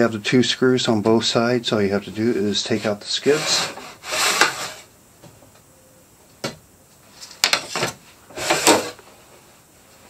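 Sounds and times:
wood scraping on wood: 2.6s - 4.9s, 8.3s - 9.1s.

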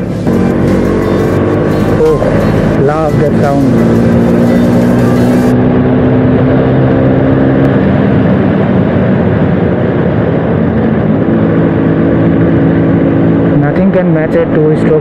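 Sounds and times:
two-stroke scooter engine running: 0.0s - 5.5s.

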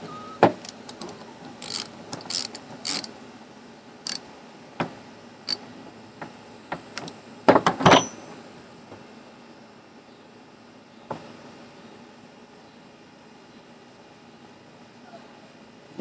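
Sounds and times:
socket ratchet clicking: 0.6s - 3.1s.

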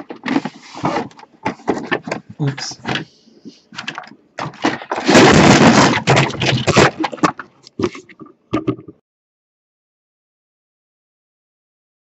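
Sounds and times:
cardboard scraping and rustling: 0.0s - 3.0s, 3.8s - 8.1s.

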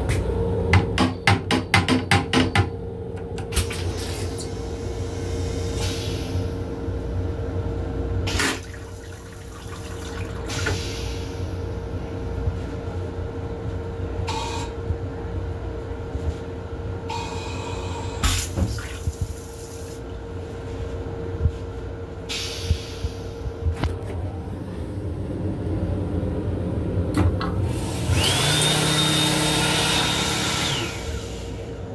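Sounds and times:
train hum and rumble: 0.0s - 28.6s, 30.6s - 31.9s
toilet rinse water hissing: 8.3s - 11.6s.

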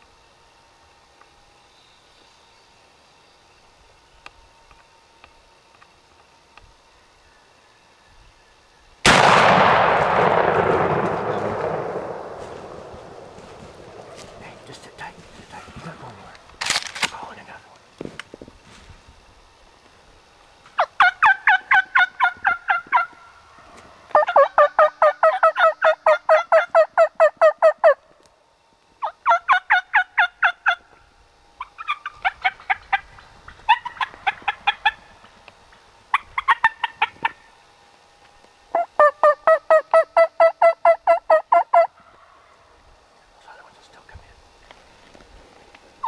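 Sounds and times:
turkey yelping: 20.8s - 23.2s, 24.1s - 28.0s, 29.0s - 30.8s, 31.6s - 35.0s, 36.1s - 37.4s, 38.7s - 42.2s.

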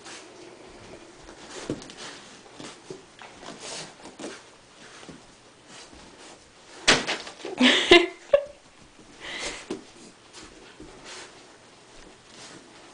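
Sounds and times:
puppy scuffling on carpet: 0.0s - 6.9s, 8.8s - 12.9s.

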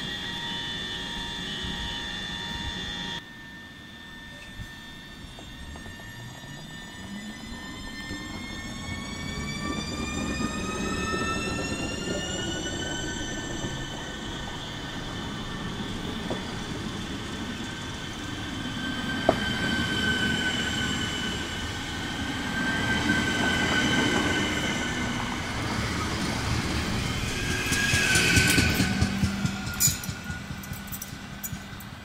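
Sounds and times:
electric train drive whining: 0.0s - 32.0s
train wheels rumbling on rails: 4.5s - 32.0s
sharp clicks from wheels: 27.5s - 32.0s.

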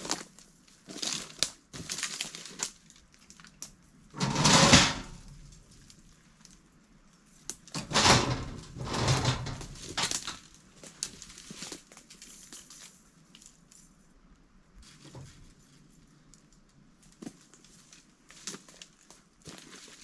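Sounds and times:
light rattles and knocks: 7.8s - 10.4s.

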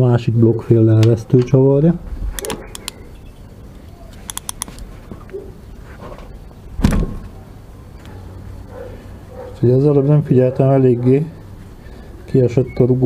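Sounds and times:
ratchet wrench clicking: 2.4s - 3.0s, 4.2s - 4.8s.

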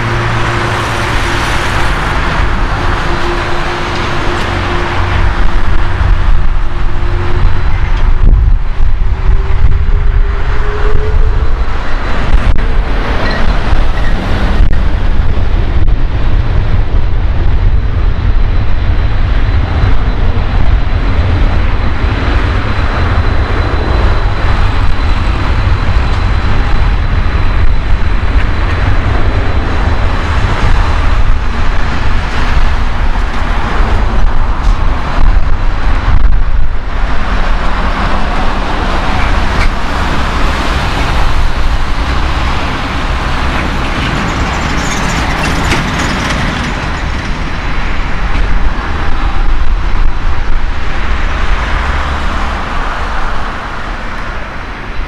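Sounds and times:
jet engines roaring: 0.0s - 55.0s.

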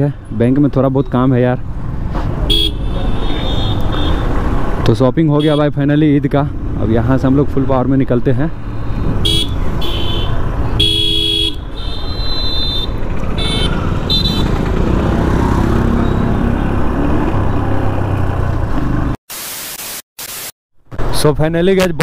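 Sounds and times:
road and wind rumble: 0.0s - 19.2s, 20.8s - 22.0s
motorcycle riding: 1.6s - 4.9s, 6.4s - 19.2s
vehicle horns honking: 2.5s - 4.3s, 5.4s - 5.7s, 9.2s - 14.6s.

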